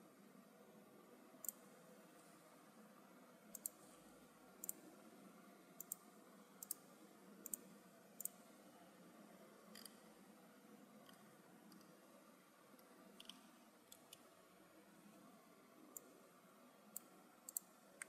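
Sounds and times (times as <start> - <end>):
faint room hiss: 0.0 - 18.0
computer mouse clicking: 1.4 - 1.6, 3.5 - 4.0, 4.6 - 4.8, 5.8 - 6.0, 6.6 - 6.8, 7.4 - 8.4, 9.7 - 10.0, 12.8 - 14.3, 16.9 - 18.0.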